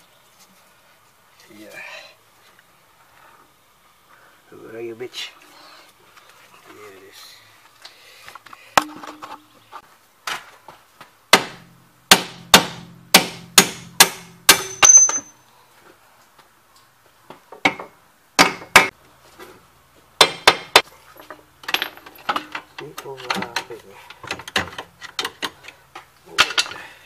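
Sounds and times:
hammer striking steel: 0:11.4 - 0:15.3.

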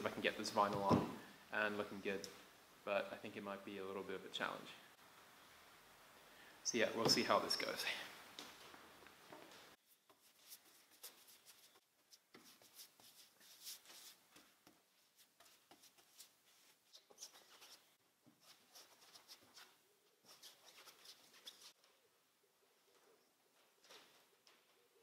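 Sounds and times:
paintbrush scratchy strokes: 0:09.8 - 0:21.8.

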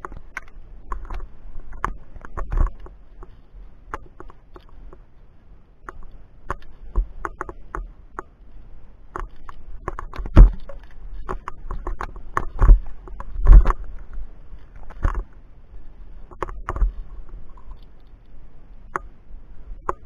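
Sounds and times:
gear knocking against rock: 0:09.2 - 0:13.8.

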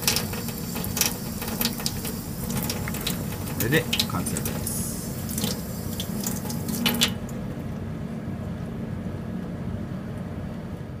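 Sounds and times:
tap water running into sink: 0:00.0 - 0:07.3.

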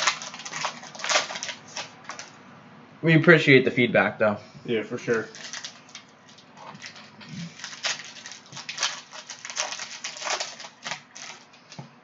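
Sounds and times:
foil pack crinkling: 0:00.0 - 0:02.4, 0:05.0 - 0:11.9.

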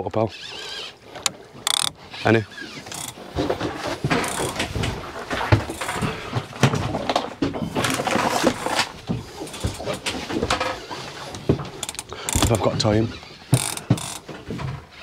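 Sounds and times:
fishing reel clicking and rattling: 0:00.3 - 0:03.2, 0:04.2 - 0:04.6, 0:11.8 - 0:12.7, 0:13.5 - 0:14.3.

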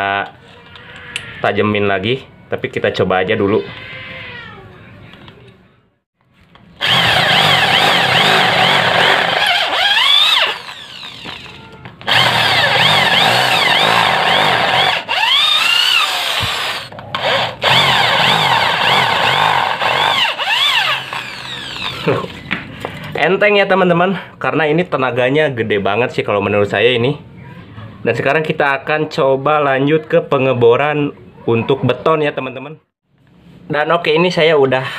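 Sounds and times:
wavering high whine of drill bit: 0:06.8 - 0:22.1
electric drill cutting into steel: 0:06.8 - 0:22.3.

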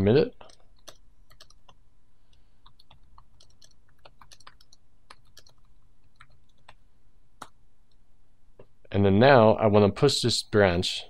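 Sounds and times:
typing on computer keyboard: 0:00.4 - 0:01.8, 0:02.6 - 0:06.8.

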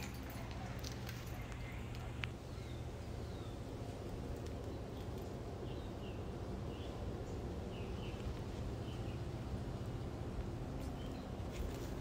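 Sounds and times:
bird chirping: 0:01.2 - 0:03.7, 0:04.6 - 0:09.3.

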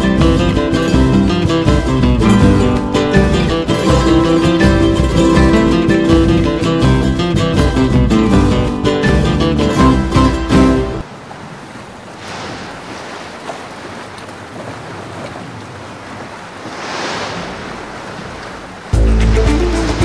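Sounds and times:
guitar music: 0:00.0 - 0:11.0, 0:19.0 - 0:20.0
sea waves washing: 0:00.0 - 0:20.0
wind: 0:00.0 - 0:20.0.

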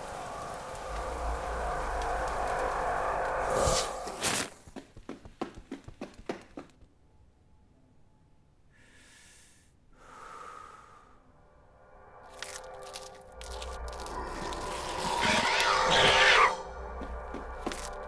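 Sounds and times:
person breathing heavily: 0:08.7 - 0:11.4.

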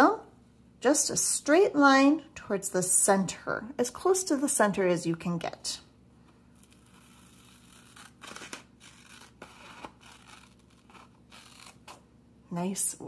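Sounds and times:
scissors snipping paper: 0:06.6 - 0:12.0.

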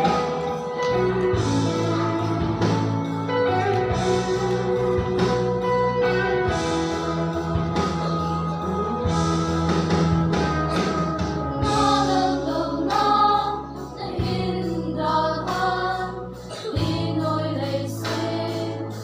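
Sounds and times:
low held accompaniment notes: 0:00.0 - 0:19.0
choir singing a hymn: 0:10.7 - 0:19.0.

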